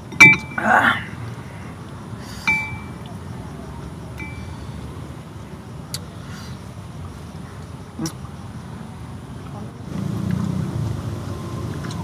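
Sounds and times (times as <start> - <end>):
clinks on small glass bowl: 0.1 - 0.6, 2.5 - 3.0, 4.2 - 4.5.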